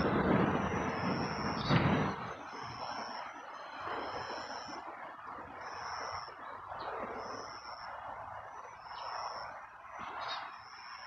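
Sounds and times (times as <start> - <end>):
rushing background hum: 0.0 - 11.0.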